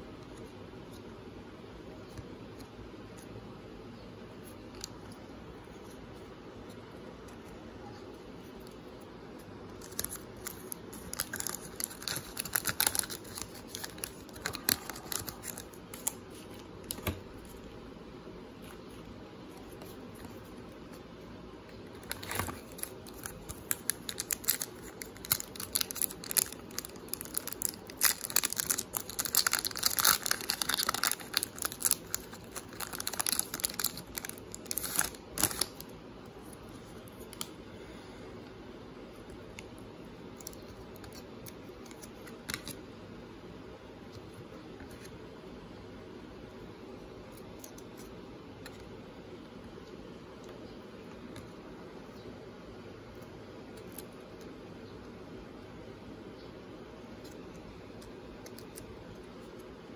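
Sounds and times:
foil wrapper crinkling and tearing: 0:09.8 - 0:16.2, 0:22.0 - 0:35.8.

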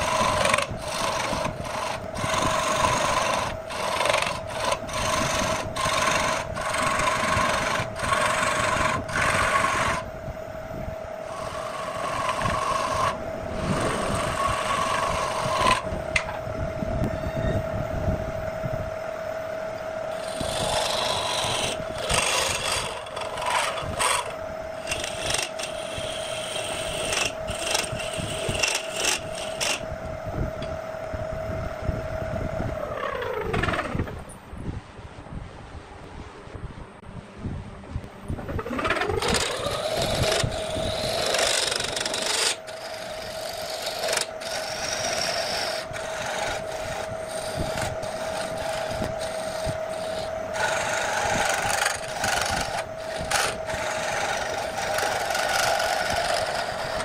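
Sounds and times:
lathe tool scraping wood: 0:00.0 - 0:10.1, 0:11.2 - 0:15.9, 0:20.1 - 0:29.9, 0:38.6 - 0:57.0
lathe motor humming: 0:00.0 - 0:10.2, 0:10.8 - 0:16.4, 0:19.7 - 0:31.4, 0:38.4 - 0:57.0.

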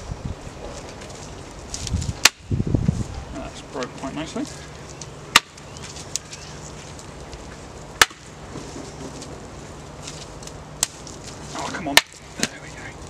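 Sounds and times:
branch snapping: 0:04.9 - 0:06.4, 0:10.1 - 0:12.6.

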